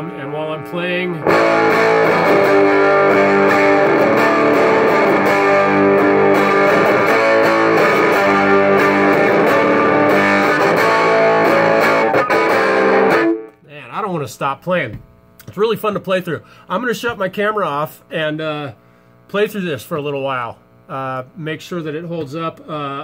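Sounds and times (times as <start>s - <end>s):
loud electric guitar: 0.0s - 13.6s.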